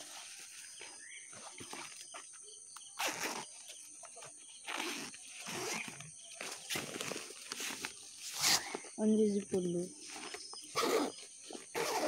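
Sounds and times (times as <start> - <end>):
nylon backpack rustling: 3.0 - 12.0.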